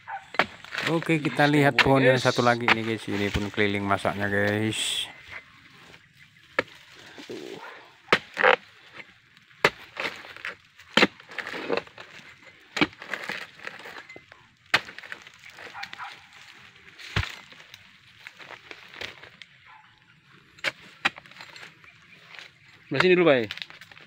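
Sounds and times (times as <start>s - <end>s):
blade chopping palm stalks: 0.2s - 3.8s, 6.5s - 7.5s, 8.1s - 19.4s, 20.6s - 24.0s.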